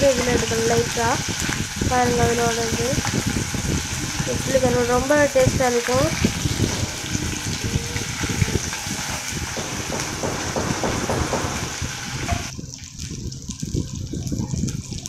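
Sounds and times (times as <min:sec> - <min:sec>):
fish sizzling in hot oil: 0:00.0 - 0:15.0
spatula scraping and knocking pot: 0:06.2 - 0:12.5.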